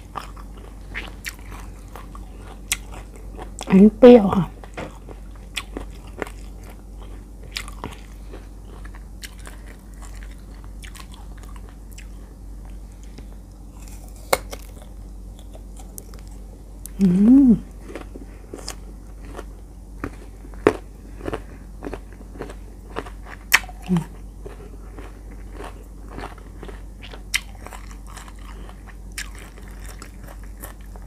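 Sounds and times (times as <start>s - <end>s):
crunchy fruit chewing: 0.0s - 31.0s
person humming: 16.9s - 17.7s, 23.8s - 24.2s.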